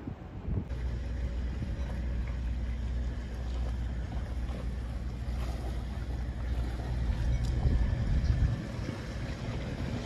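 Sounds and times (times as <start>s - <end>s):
wind on microphone: 0.0s - 0.8s, 6.6s - 10.0s
boat engine rumbling: 0.0s - 10.0s
water noise: 0.0s - 10.0s.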